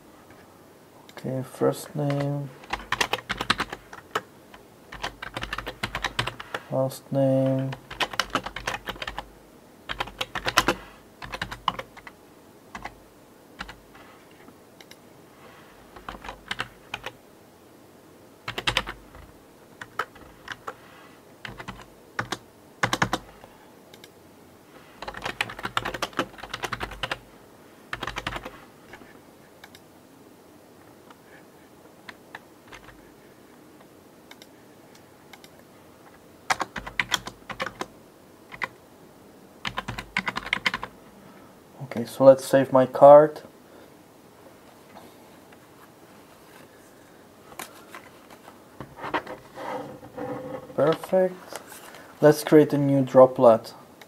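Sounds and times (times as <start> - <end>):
typing on computer keyboard: 2.1 - 4.2, 4.9 - 6.6, 7.7 - 9.3, 9.9 - 12.2, 12.8 - 13.0, 16.0 - 17.2, 18.5 - 19.2, 19.8 - 20.8, 21.4 - 23.2, 25.0 - 27.2, 27.9 - 28.5, 32.1 - 33.0, 36.5 - 37.9, 38.5 - 38.7, 39.6 - 40.9.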